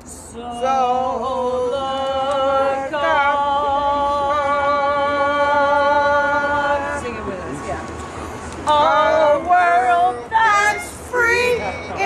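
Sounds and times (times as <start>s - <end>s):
group of voices singing: 0.1s - 7.3s, 8.6s - 12.0s
violin playing: 9.8s - 12.0s.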